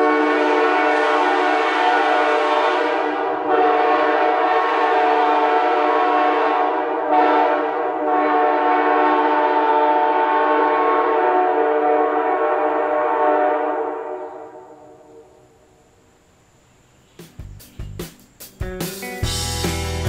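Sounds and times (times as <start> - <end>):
locomotive air horn chord: 0.0 - 15.0.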